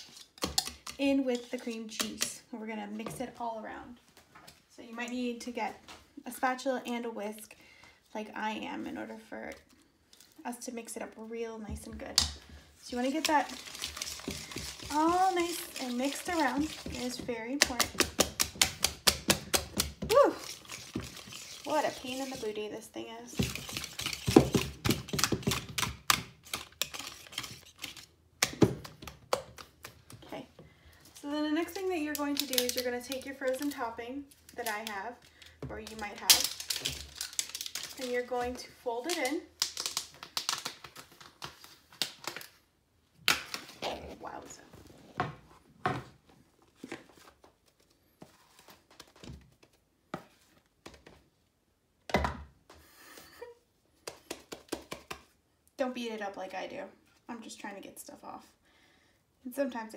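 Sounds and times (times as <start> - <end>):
whisk scraping a mixing bowl: 13.0 - 18.0, 20.4 - 22.6, 23.4 - 25.1.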